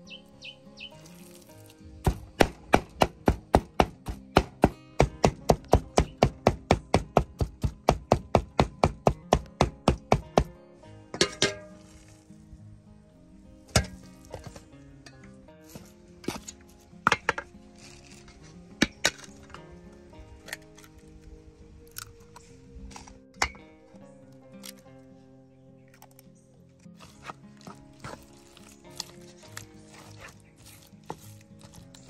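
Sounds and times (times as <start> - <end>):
background music: 0.0 - 32.0
cleaver chopping on wooden board: 2.0 - 10.5.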